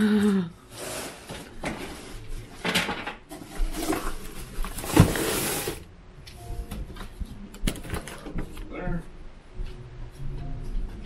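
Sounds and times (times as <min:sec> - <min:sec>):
plastic branches rustling: 0:00.7 - 0:05.9.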